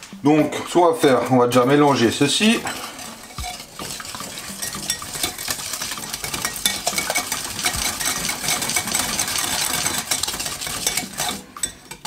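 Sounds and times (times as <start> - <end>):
whisk clicking against glass bowl: 3.2 - 12.0.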